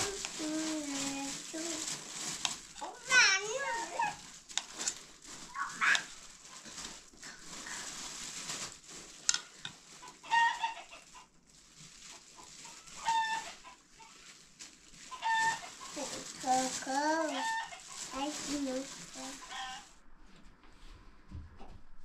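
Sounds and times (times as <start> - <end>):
chickens clucking: 5.5 - 6.1, 10.0 - 11.3, 12.1 - 14.1, 15.1 - 16.3, 17.3 - 18.1, 19.3 - 19.9.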